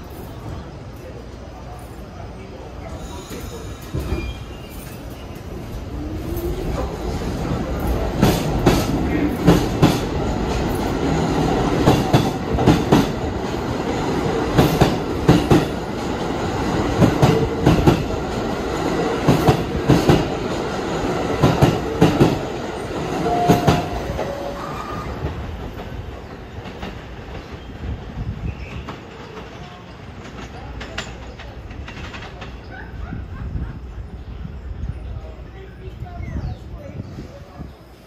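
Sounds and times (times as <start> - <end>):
subway train wheels clicking: 0.0 - 38.0
train squeaks: 2.8 - 9.6.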